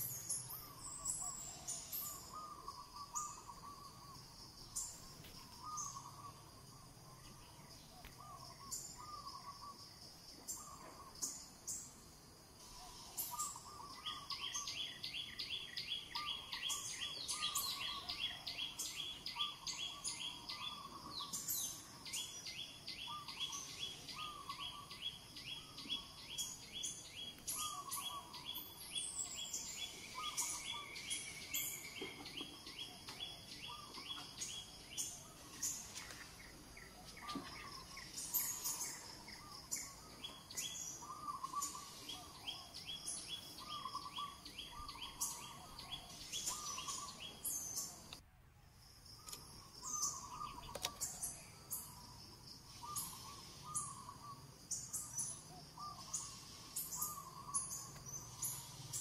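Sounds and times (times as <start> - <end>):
birds chirping and trilling: 0.0 - 48.2, 48.8 - 59.0
outdoor background noise: 0.0 - 59.0.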